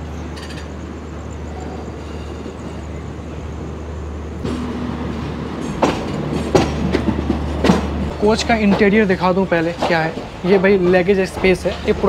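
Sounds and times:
train rolling low rumble: 0.0s - 12.0s.

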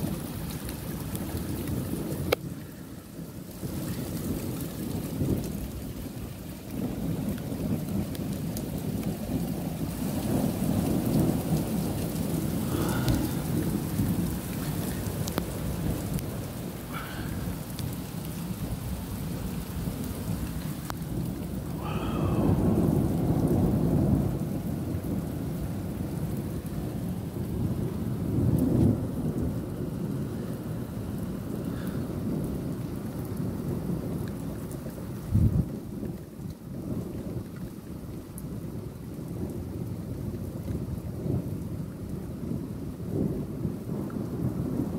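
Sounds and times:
thunder rumbling: 0.0s - 37.8s, 38.4s - 44.9s
steady rain: 0.0s - 44.9s.

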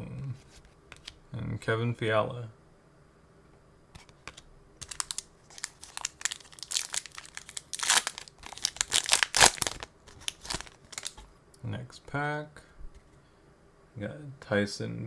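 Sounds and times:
foil wrapper tearing and crinkling: 4.8s - 11.2s.

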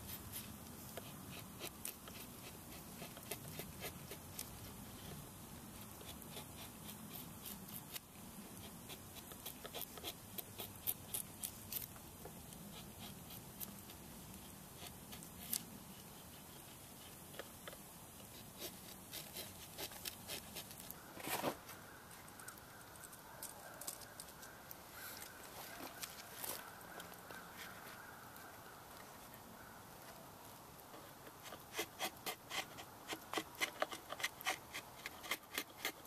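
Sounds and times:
drawknife scraping wood: 0.9s - 4.5s, 16.2s - 21.8s, 31.3s - 36.0s.

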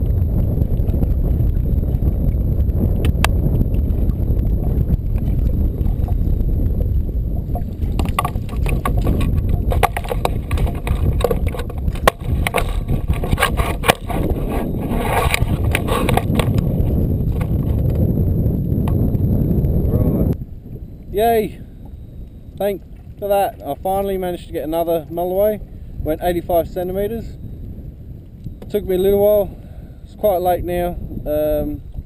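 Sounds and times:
wind buffeting microphone: 0.0s - 32.0s
clicks and knocks of handling: 7.5s - 14.2s.

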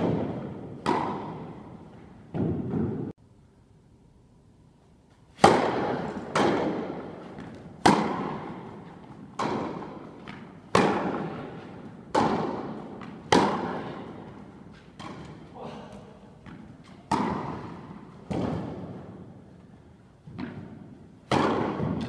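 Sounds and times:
tennis ball knocks echoing: 0.0s - 1.6s, 5.4s - 14.3s, 16.4s - 19.0s, 20.4s - 22.0s.

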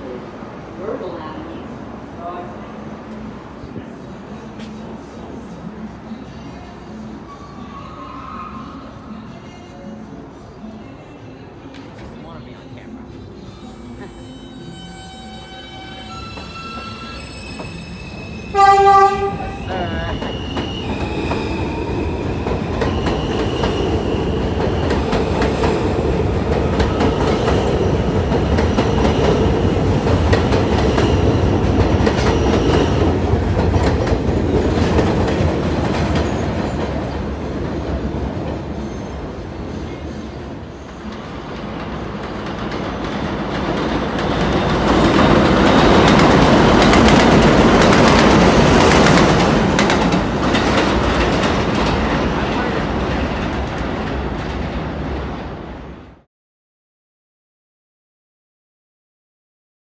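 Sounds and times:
train wheels rumbling on track: 15.7s - 56.3s
train horn blast: 18.5s - 19.9s.

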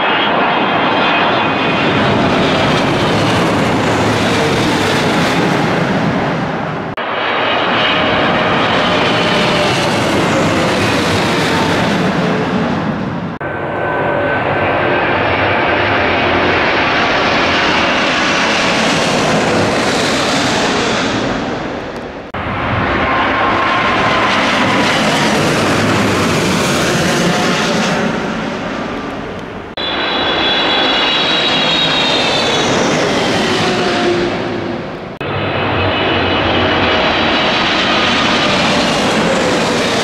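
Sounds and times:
high jet engine whine: 0.0s - 40.0s
jet noise rush overhead: 0.0s - 40.0s.

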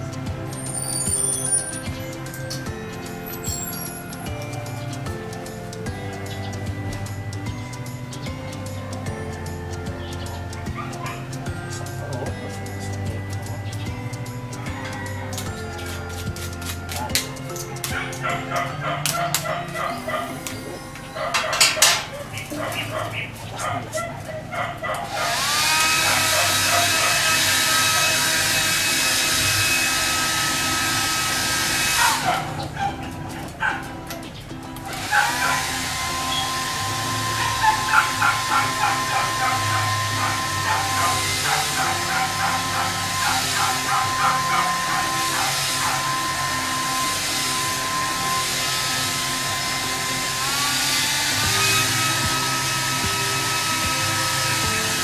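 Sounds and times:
blow dryer running: 25.0s - 34.1s, 34.7s - 55.0s.

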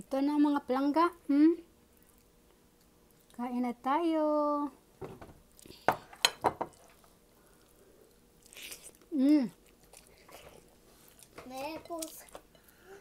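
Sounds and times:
soft chewing: 1.8s - 3.4s, 6.7s - 13.0s.

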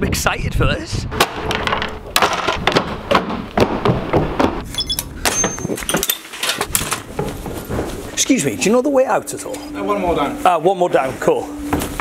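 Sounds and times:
short high beep of door lock: 4.7s - 5.7s.

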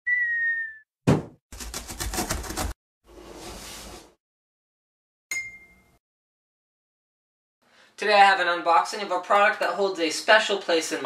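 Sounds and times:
sudden thump: 1.0s - 1.4s.

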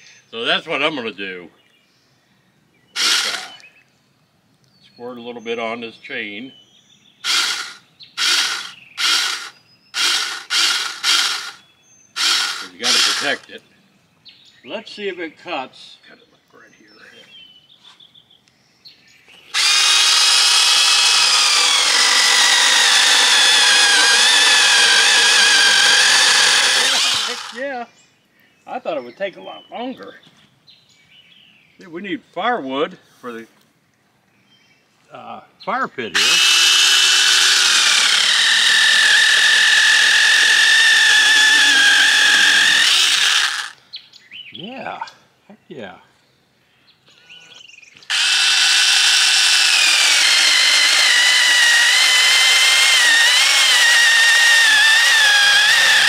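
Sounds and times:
electric chainsaw cutting branch: 3.0s - 3.6s, 7.2s - 11.6s, 12.2s - 13.6s, 19.5s - 27.7s, 36.2s - 43.8s, 48.0s - 56.0s.

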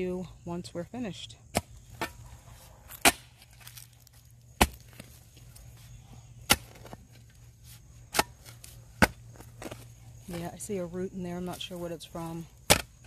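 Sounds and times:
spade chopping into soil: 1.5s - 2.2s, 2.9s - 3.9s, 4.6s - 5.1s, 6.3s - 7.1s, 8.0s - 9.9s, 12.6s - 13.0s.

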